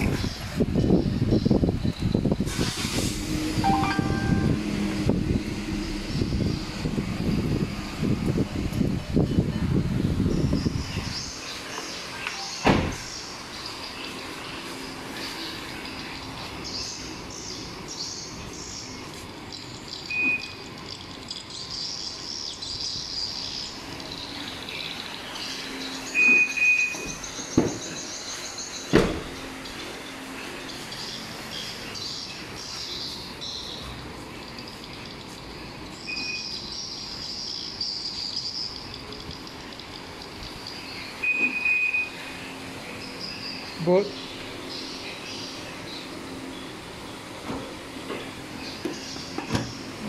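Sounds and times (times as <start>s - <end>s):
birds chirping: 3.6s - 50.0s
car alarm beeps: 3.7s - 4.7s, 20.1s - 20.6s, 26.1s - 27.2s, 36.1s - 36.6s, 41.2s - 42.2s
short high alarm beep: 3.7s - 4.7s.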